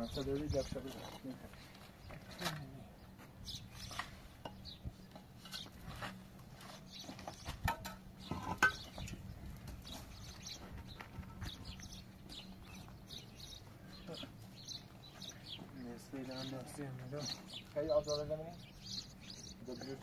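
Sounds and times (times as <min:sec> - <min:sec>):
concrete blocks knocking and scraping: 0:03.9 - 0:10.1.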